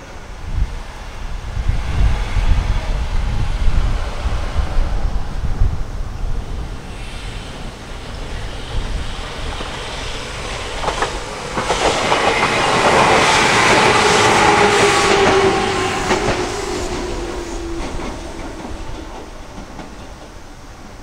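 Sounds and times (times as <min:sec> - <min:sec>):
electric train passing: 0:00.0 - 0:21.0
train whine: 0:00.0 - 0:21.0
wheels clacking over rail joints: 0:09.3 - 0:20.5.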